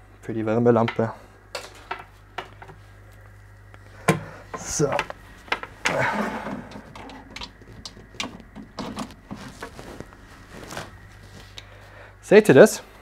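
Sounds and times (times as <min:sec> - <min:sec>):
light clicks and knocks: 0:06.7 - 0:09.7
short rustle: 0:09.0 - 0:11.9.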